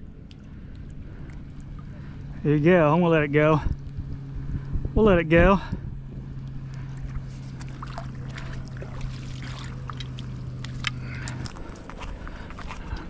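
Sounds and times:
boat engine humming: 0.0s - 13.0s
small clicks and ticks: 9.9s - 12.0s.

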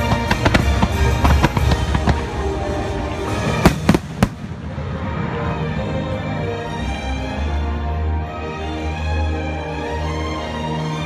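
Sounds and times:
fireworks bursting: 0.0s - 5.2s.

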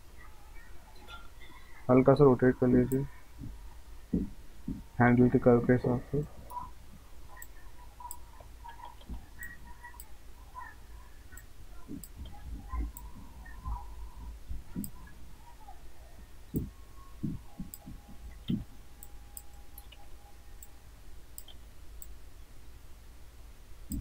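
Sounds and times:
low steady hum: 0.0s - 24.0s
computer mouse clicks: 7.4s - 10.1s, 16.5s - 20.7s, 21.4s - 22.2s.

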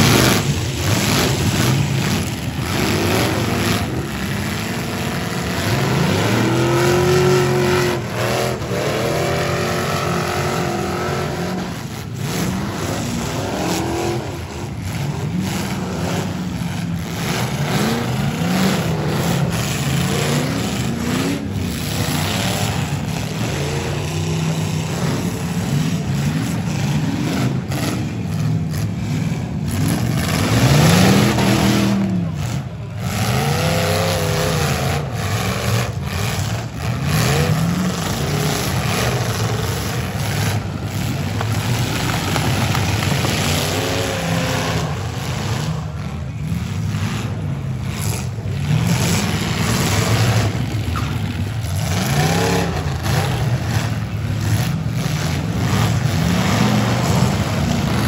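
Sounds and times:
car engines revving: 0.0s - 58.0s.

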